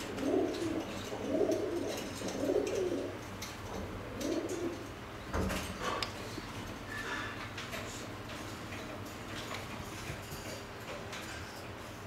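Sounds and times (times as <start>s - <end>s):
pigeon cooing: 0.0s - 3.2s, 3.9s - 4.9s.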